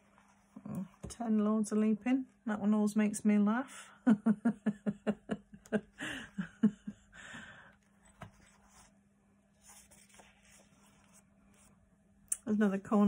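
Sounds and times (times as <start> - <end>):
woman laughing: 4.0 - 7.3
paper page rustling: 9.6 - 11.7.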